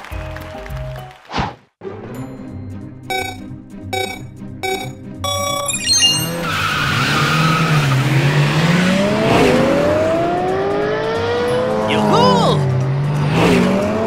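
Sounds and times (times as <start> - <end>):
start signal beeps: 3.1 - 6.6
cartoon car engines revving: 5.5 - 14.0.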